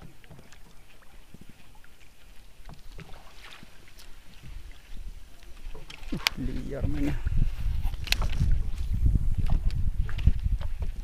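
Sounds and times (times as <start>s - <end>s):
faint tackle clicks: 5.3s - 10.8s.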